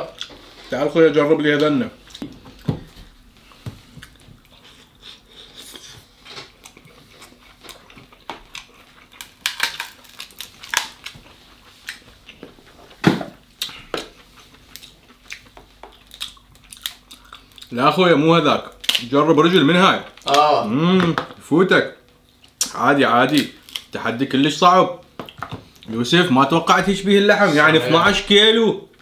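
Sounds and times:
chewing: 4.0s - 13.0s, 13.6s - 17.7s
crab shell cracking: 8.2s - 11.2s.

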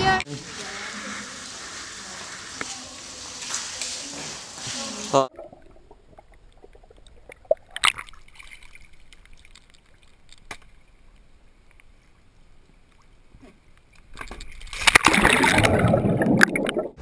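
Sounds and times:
pool water lapping: 0.3s - 10.1s
person plunging into pool: 14.2s - 17.0s.

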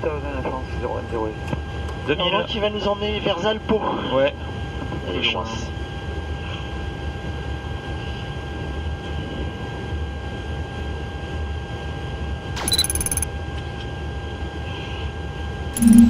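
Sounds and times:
short high-pitched electronic sound: 15.8s - 16.0s.

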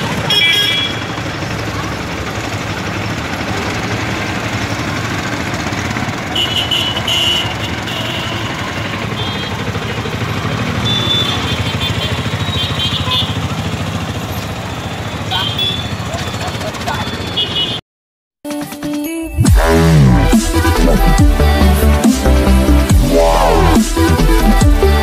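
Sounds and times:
vehicle engines running: 0.0s - 17.8s, 19.4s - 25.0s
brief high-pitched sounds: 19.2s - 24.0s.

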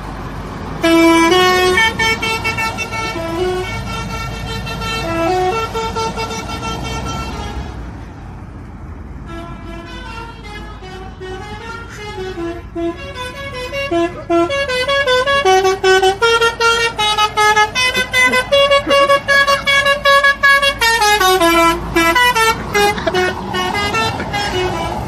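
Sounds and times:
truck musical air horn: 0.8s - 8.0s, 9.2s - 25.0s.

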